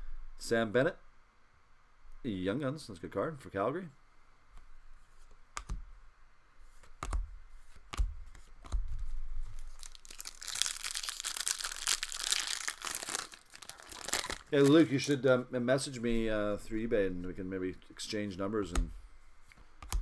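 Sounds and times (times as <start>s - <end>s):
foil wrapper crinkling and tearing: 9.6s - 15.1s.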